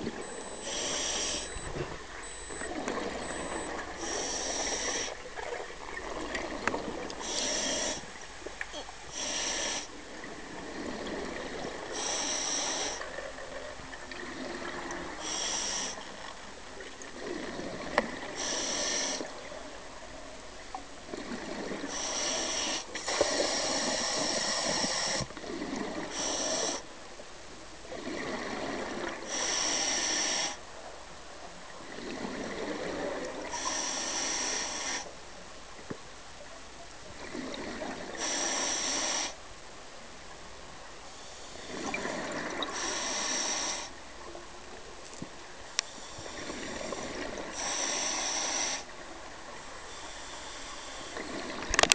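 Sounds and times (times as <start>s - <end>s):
scuba regulator hiss: 0.5s - 1.7s, 3.3s - 5.2s, 7.2s - 8.0s, 12.0s - 13.0s, 15.2s - 16.0s, 18.4s - 19.3s, 26.1s - 26.8s, 29.3s - 30.6s, 33.5s - 35.1s, 38.2s - 39.4s, 42.8s - 43.9s, 47.5s - 48.9s
exhaled bubbles gurgling: 41.6s - 43.8s.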